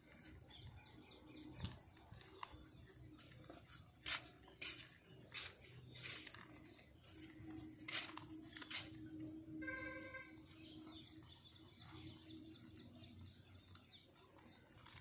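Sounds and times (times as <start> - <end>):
cat crunching on a bone: 13.5 - 15.0.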